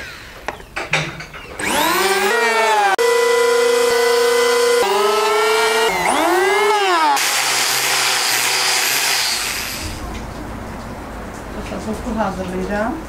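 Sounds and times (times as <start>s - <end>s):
electric hand planer whine: 1.6s - 9.9s
angle grinder sanding wood: 1.6s - 10.0s.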